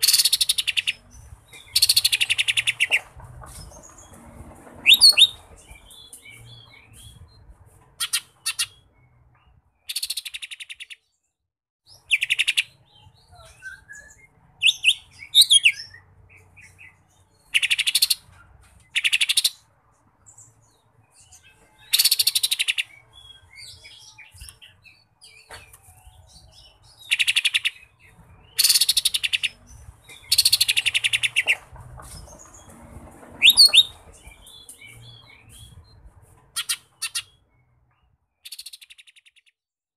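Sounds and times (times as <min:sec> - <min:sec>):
bird singing chattering trills: 0:04.9 - 0:07.3, 0:08.0 - 0:11.0, 0:11.9 - 0:18.3, 0:20.3 - 0:31.7, 0:33.4 - 0:39.6.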